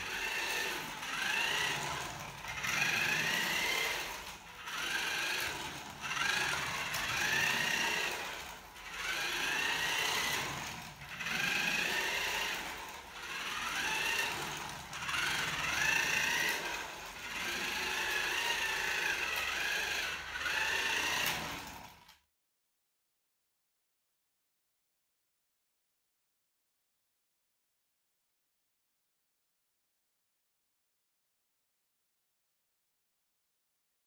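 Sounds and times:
toy car electric motor whining: 0:00.0 - 0:22.3.

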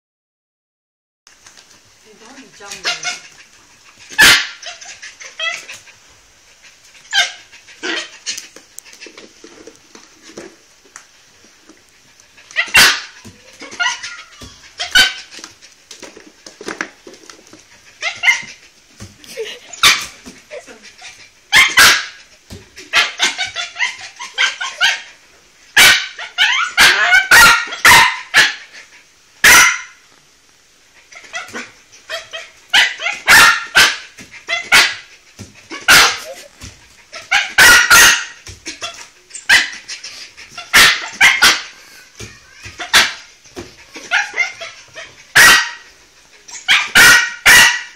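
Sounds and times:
dog barking: 0:04.2 - 0:04.6, 0:12.6 - 0:13.2, 0:21.6 - 0:22.2, 0:25.8 - 0:28.6, 0:29.4 - 0:30.0, 0:31.4 - 0:35.1, 0:35.8 - 0:36.4, 0:37.2 - 0:38.4, 0:40.7 - 0:41.7, 0:45.3 - 0:45.8, 0:46.7 - 0:47.9.

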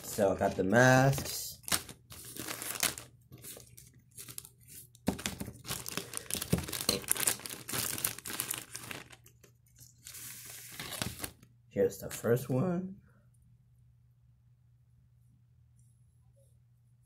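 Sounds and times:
plastic packaging crinkling: 0:00.0 - 0:11.4.

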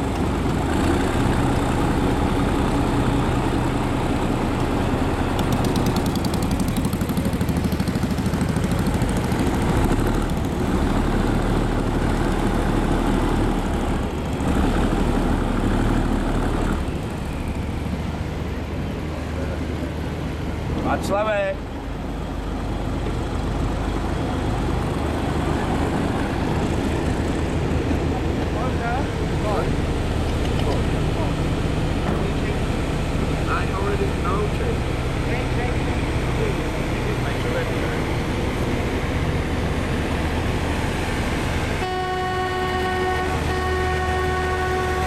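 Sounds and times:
boat engine droning: 0:00.0 - 0:45.0
wind and water rushing: 0:17.8 - 0:37.0, 0:37.7 - 0:41.9.

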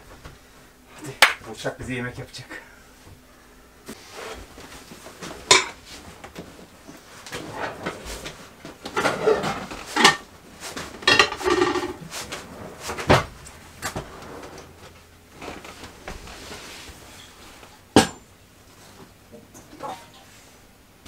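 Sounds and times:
pots clattering: 0:05.4 - 0:05.8, 0:07.3 - 0:10.3, 0:10.9 - 0:12.1
cupboards and drawers opening and shutting: 0:07.2 - 0:17.3.

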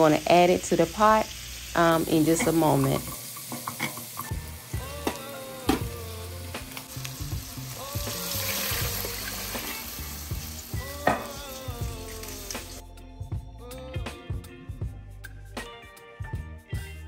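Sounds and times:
onions sizzling in grease: 0:00.0 - 0:12.8
background music: 0:02.0 - 0:17.0
water poured into hot pot: 0:08.1 - 0:10.1.

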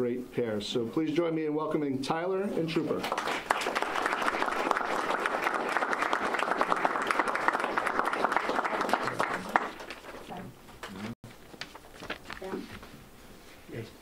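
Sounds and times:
audience applauding: 0:02.9 - 0:10.4.

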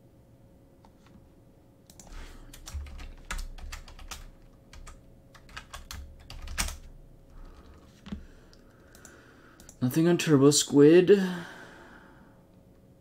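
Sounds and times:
keyboard typing: 0:01.9 - 0:06.9.

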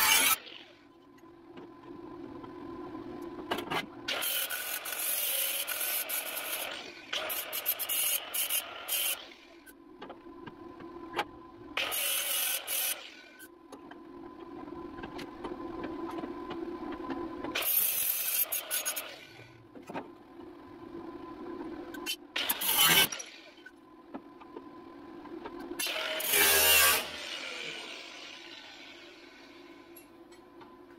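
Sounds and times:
angle grinder grinding steel: 0:00.0 - 0:00.7, 0:04.1 - 0:09.3, 0:11.8 - 0:13.1, 0:17.6 - 0:19.3, 0:22.4 - 0:23.4, 0:25.8 - 0:29.7.

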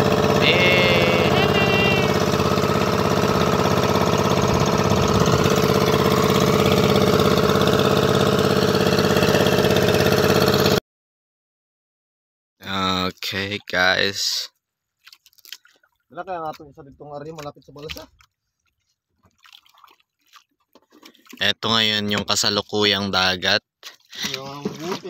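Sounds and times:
boat engine running: 0:00.0 - 0:10.8.

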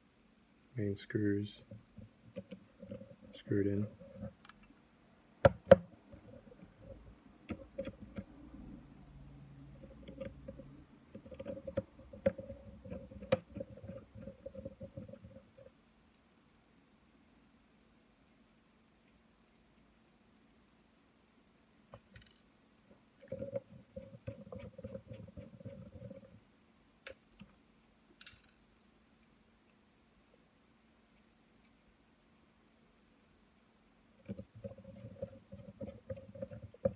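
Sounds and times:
small parts clicking: 0:21.9 - 0:22.5, 0:27.0 - 0:30.4.

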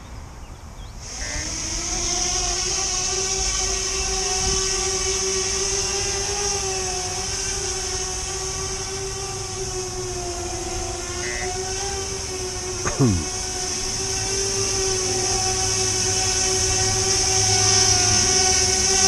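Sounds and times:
drone motors and propellers humming: 0:00.8 - 0:19.0
high hiss: 0:01.0 - 0:05.5.

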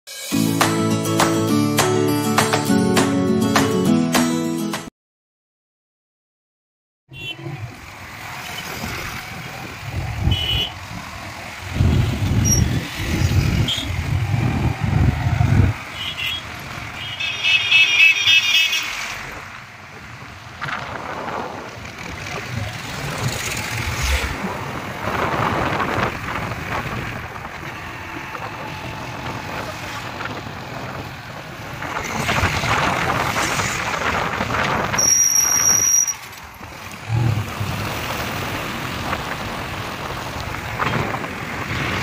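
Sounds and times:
car horn tooting: 0:07.1 - 0:07.5, 0:10.2 - 0:10.8, 0:15.9 - 0:19.0
vehicle engine and road noise: 0:07.1 - 0:42.0
vehicles passing: 0:07.1 - 0:42.0.

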